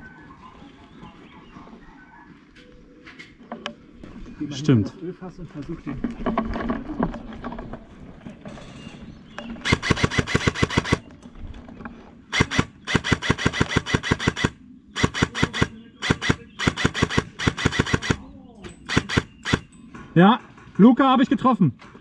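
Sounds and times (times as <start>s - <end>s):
airsoft rifle automatic fire: 9.6s - 11.0s, 12.3s - 18.2s, 18.8s - 19.7s.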